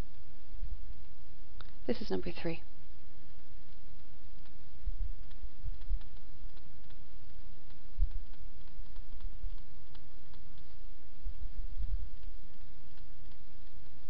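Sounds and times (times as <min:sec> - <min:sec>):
dull low bumps: 0:02.7 - 0:14.0
stylus tapping on pen tablet: 0:05.2 - 0:10.8.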